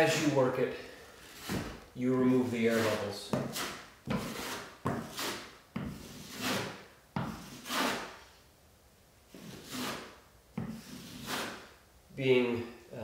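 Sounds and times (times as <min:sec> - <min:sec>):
drywall knife scraping a wall: 0:01.2 - 0:01.8, 0:02.4 - 0:08.2, 0:09.3 - 0:11.8.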